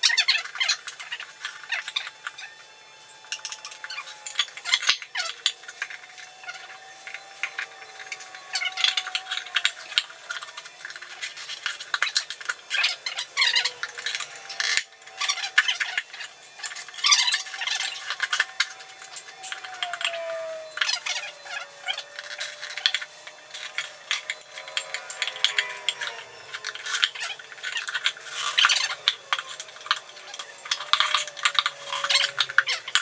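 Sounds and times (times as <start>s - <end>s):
faint wavering whine: 0.0s - 33.0s
metal scraping on rim: 13.2s - 33.0s.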